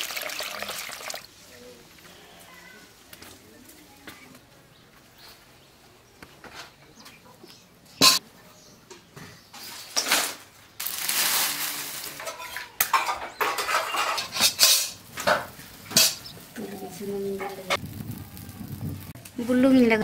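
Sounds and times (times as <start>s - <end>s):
metal wok clanking on floor: 8.0s - 8.2s, 12.2s - 16.7s
dry leaves and twigs crunching: 10.8s - 12.5s.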